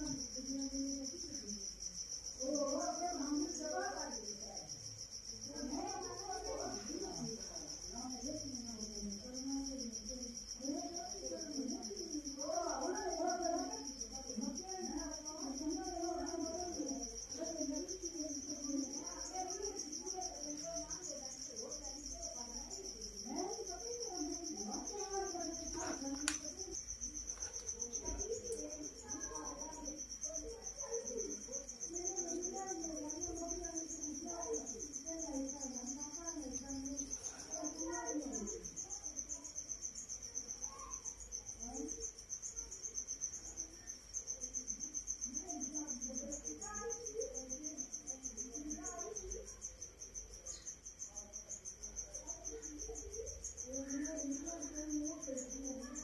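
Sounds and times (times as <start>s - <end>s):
crickets chirping: 0.0s - 56.0s
faint voices talking: 0.0s - 56.0s.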